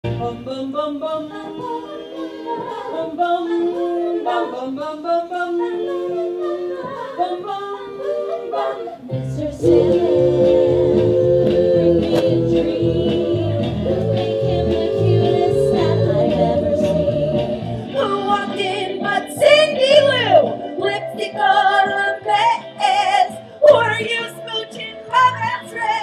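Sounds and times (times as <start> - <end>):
women singing in close harmony: 0.2 - 26.0
band with bass line: 9.1 - 23.0.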